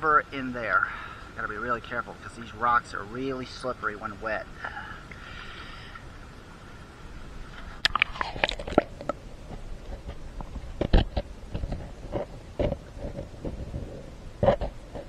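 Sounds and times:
shallow water: 0.0s - 15.0s
knocks and scrapes on rocks: 7.6s - 15.0s.

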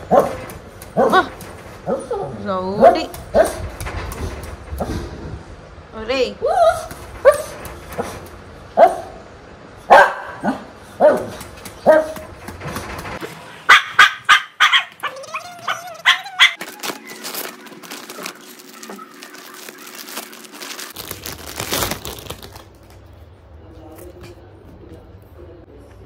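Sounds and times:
small dog barking: 8.8s - 9.2s, 9.9s - 12.2s, 13.7s - 16.6s
dog whining: 13.9s - 16.9s.

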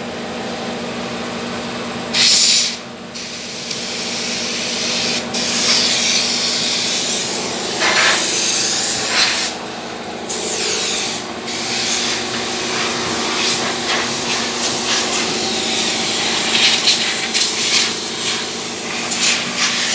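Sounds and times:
compressed air hissing: 2.1s - 9.6s, 10.3s - 19.9s.

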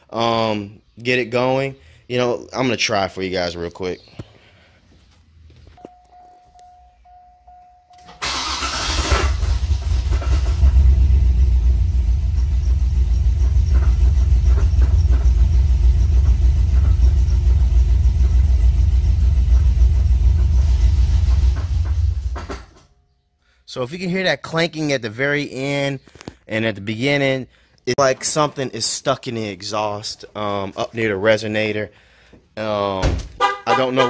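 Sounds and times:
car engine cranking and starting: 7.9s - 22.8s
car engine idling: 8.2s - 22.7s
engine clanking: 8.2s - 22.9s.

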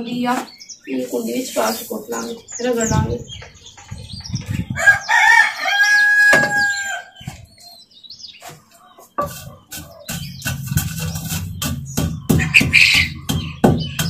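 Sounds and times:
rooster crowing: 4.8s - 7.2s.

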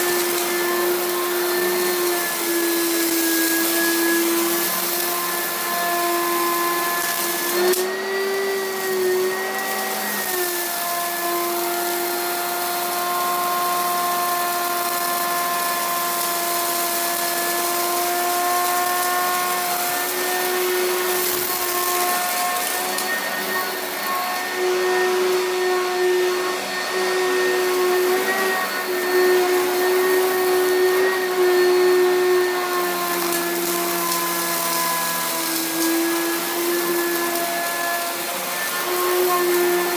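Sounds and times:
vacuum cleaner running: 0.0s - 39.9s.

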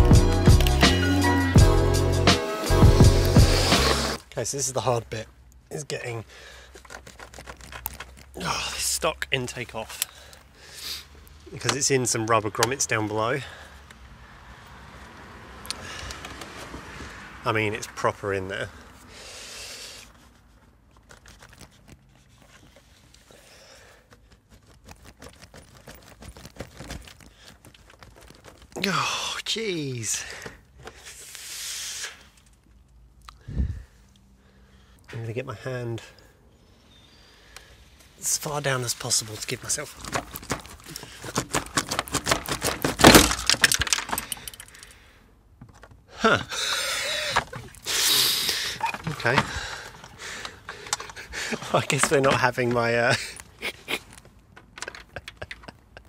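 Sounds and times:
hard plastic clicking and rattling: 40.0s - 44.9s, 48.9s - 53.5s, 54.1s - 56.0s.

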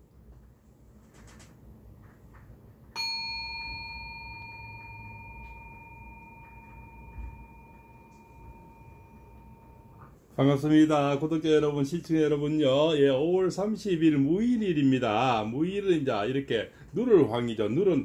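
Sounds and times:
small metal bell ringing: 3.0s - 10.1s.

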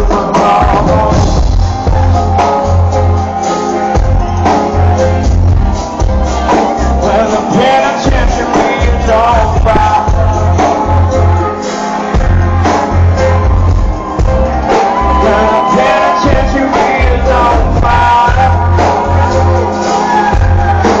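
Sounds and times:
man singing: 0.0s - 2.9s, 6.0s - 12.1s, 14.6s - 21.0s
heavy bass: 0.0s - 21.0s
live rock band playing: 0.0s - 21.0s.

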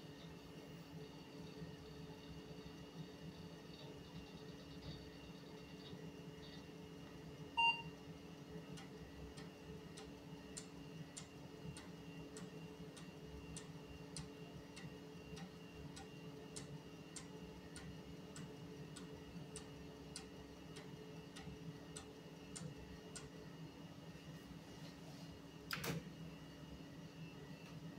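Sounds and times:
computer fans humming: 0.0s - 27.9s
short computer beep: 7.6s - 7.9s.

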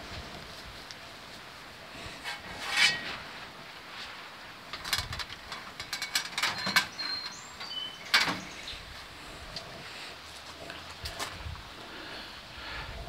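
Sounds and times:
metal rack scraping: 2.2s - 3.6s, 4.7s - 7.3s
metal clinks and rattles: 4.7s - 7.0s.

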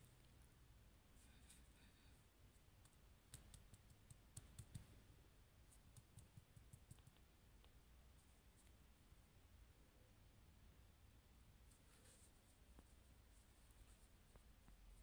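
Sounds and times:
faint clicks and ticks: 2.8s - 5.0s, 5.7s - 7.8s.

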